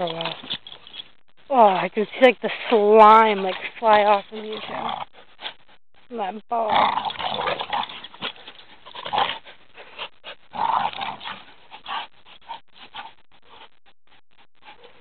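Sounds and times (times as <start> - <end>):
dogs growling: 0.0 - 1.0, 3.1 - 5.8, 6.6 - 13.7.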